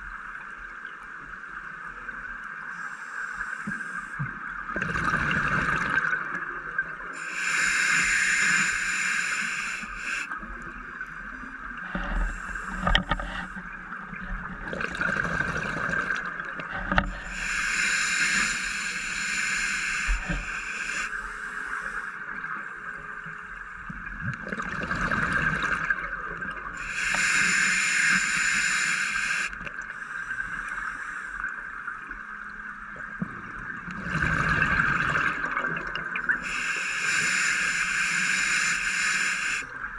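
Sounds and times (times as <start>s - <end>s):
regulator breathing hiss: 2.7s - 4.2s, 7.1s - 13.8s, 16.8s - 23.9s, 26.8s - 31.9s, 36.4s - 39.9s
exhaled bubbles rushing: 14.4s - 16.7s, 24.3s - 26.8s, 33.9s - 36.4s.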